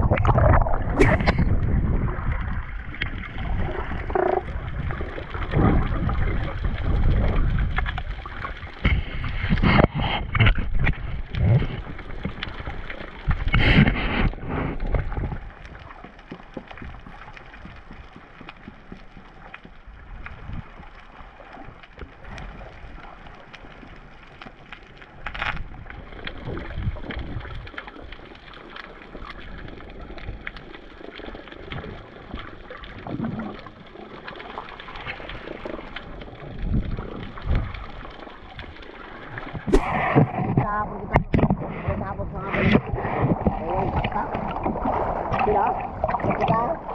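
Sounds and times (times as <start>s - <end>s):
rush of water noise: 0.0s - 11.8s, 37.0s - 46.9s
faint underwater clicks: 0.0s - 46.9s
underwater wash: 0.0s - 46.9s
short sharp burst: 39.7s - 40.4s.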